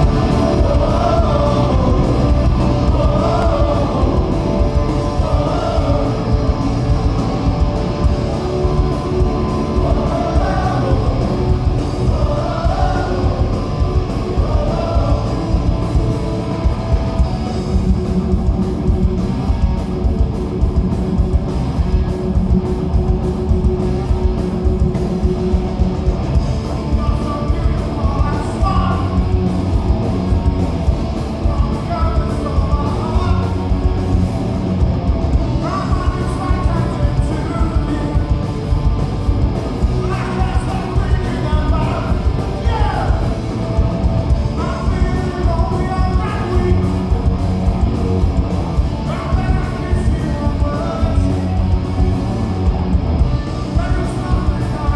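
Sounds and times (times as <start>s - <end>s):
man singing: 0.0s - 6.9s, 9.3s - 16.0s, 26.9s - 29.3s, 31.4s - 33.6s, 35.6s - 38.5s, 39.9s - 43.3s, 44.5s - 47.0s, 49.0s - 51.2s, 53.4s - 54.9s
punk rock band playing: 0.0s - 54.9s.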